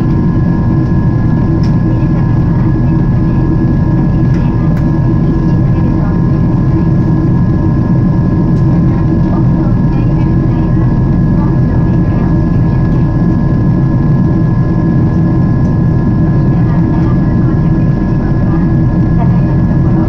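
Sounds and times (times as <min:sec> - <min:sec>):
airliner cabin roar: 0:00.0 - 0:20.0
faint steady hum: 0:00.0 - 0:20.0.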